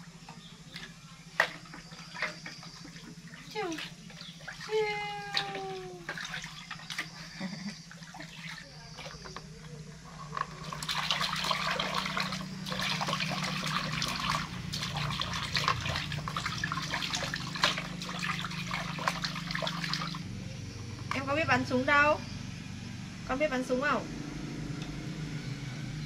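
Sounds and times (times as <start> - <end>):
low steady hum: 0.0 - 26.0
water splashing in plastic tub: 0.7 - 20.2.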